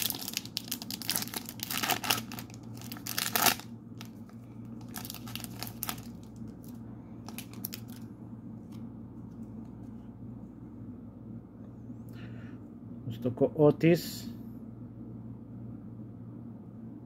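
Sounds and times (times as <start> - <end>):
foil pack tearing and crinkling: 0.0 - 8.0.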